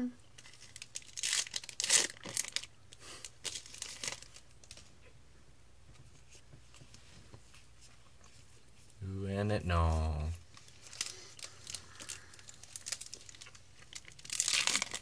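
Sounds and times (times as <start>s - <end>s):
foil wrapper crinkling and tearing: 0.4s - 4.9s, 10.6s - 15.0s.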